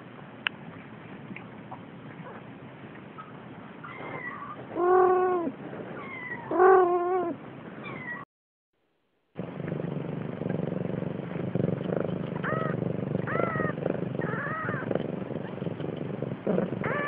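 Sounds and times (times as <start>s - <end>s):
low background noise: 0.0s - 8.2s, 8.9s - 17.0s.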